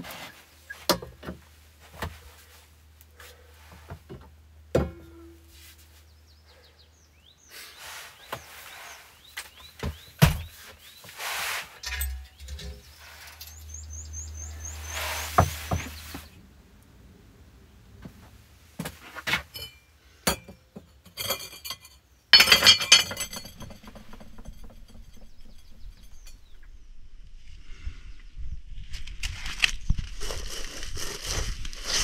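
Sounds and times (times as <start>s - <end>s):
cast iron rings clinking: 11.8s - 13.8s, 19.4s - 26.6s
loud metallic clatter: 22.4s - 26.5s.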